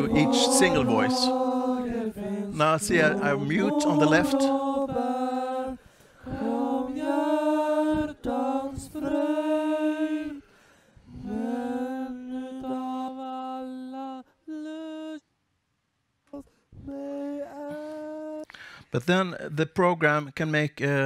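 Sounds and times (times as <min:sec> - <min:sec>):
boys singing unaccompanied: 0:00.0 - 0:10.4, 0:11.2 - 0:15.1.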